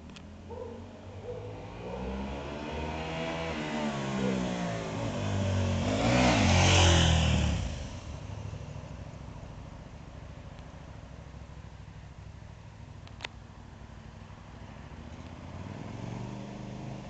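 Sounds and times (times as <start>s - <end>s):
motorcycle engine passing by: 0.5s - 9.0s, 14.7s - 17.0s.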